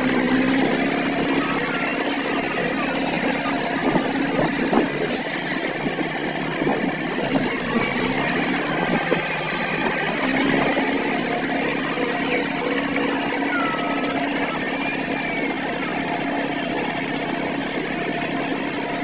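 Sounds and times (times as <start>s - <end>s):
tractor diesel engine under load: 0.0s - 19.0s.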